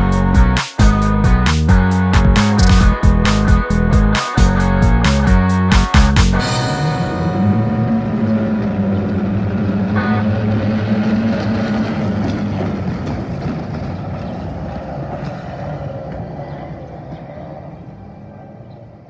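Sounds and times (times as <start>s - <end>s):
racing boat engines droning: 6.4s - 19.0s.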